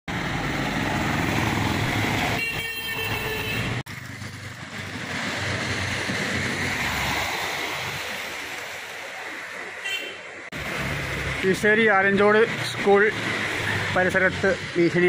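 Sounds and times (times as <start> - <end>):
road traffic passing: 0.1 - 15.0
vehicle horn: 2.4 - 3.8, 9.8 - 10.3
steady rushing noise: 4.3 - 9.8.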